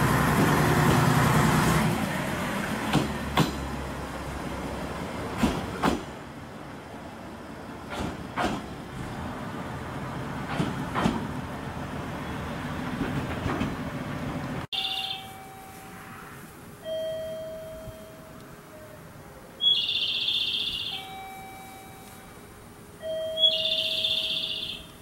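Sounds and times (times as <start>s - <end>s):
diesel railcar running: 0.0s - 25.0s
artificial bird chirps: 14.8s - 15.5s, 19.6s - 21.3s, 23.2s - 25.0s
two-note electronic chime: 14.8s - 16.2s, 16.8s - 18.4s, 19.9s - 22.4s, 23.0s - 24.9s.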